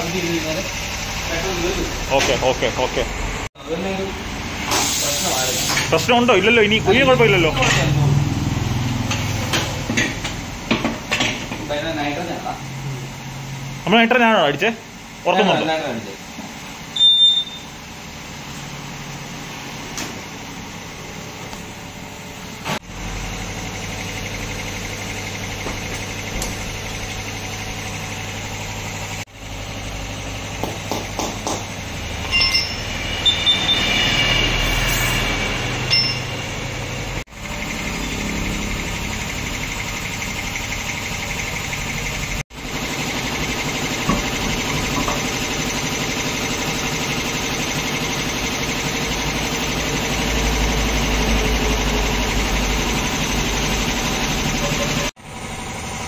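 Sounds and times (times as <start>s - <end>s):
steady machine hum: 11.8s - 56.0s
high steady tones: 32.0s - 37.2s.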